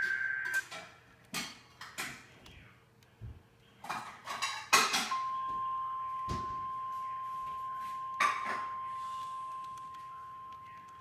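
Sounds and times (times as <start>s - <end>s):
steady alarm tone: 0.0s - 0.7s, 5.1s - 11.0s.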